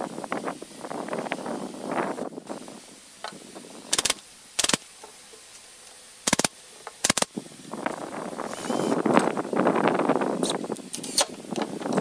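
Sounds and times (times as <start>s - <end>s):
nail gun firing: 3.9s - 4.8s, 6.2s - 7.3s.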